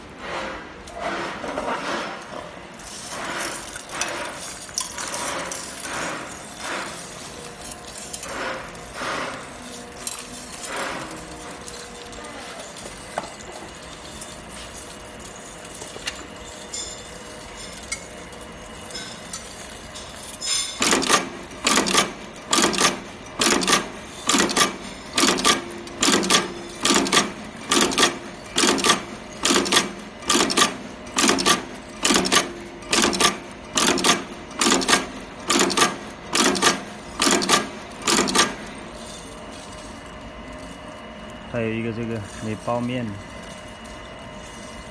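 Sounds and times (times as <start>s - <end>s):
stud machine clacking: 20.8s - 38.7s.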